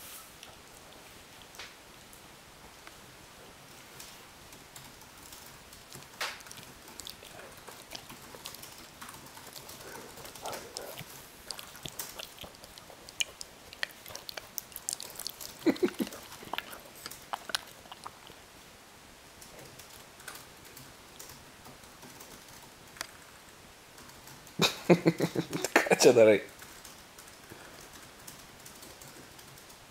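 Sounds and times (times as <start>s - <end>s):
dog chewing a tennis ball: 5.0s - 18.5s.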